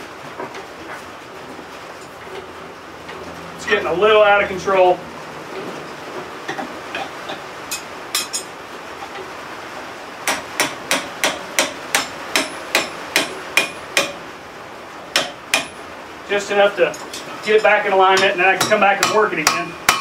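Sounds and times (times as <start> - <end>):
hammer striking metal: 10.2 - 14.2, 15.1 - 15.8, 17.1 - 20.0.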